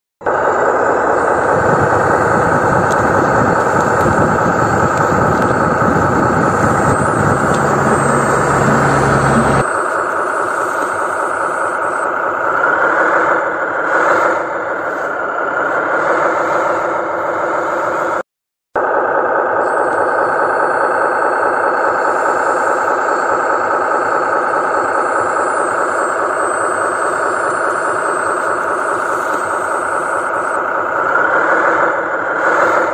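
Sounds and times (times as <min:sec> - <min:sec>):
road noise: 0:00.2 - 0:09.8
heavy truck engine running: 0:00.2 - 0:18.2, 0:18.8 - 0:32.9
thinner engine sound: 0:00.2 - 0:18.2, 0:18.8 - 0:32.9
brief whine: 0:01.2 - 0:12.1, 0:24.5 - 0:30.6.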